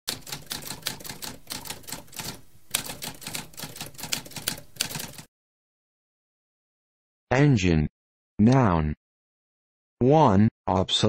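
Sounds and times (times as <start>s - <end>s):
typewriter keys clattering: 0.1s - 5.3s.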